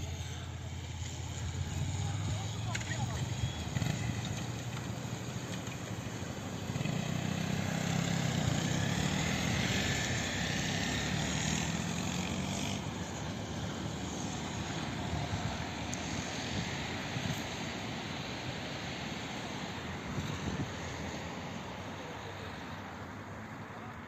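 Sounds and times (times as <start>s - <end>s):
cars driving past: 0.0s - 24.0s.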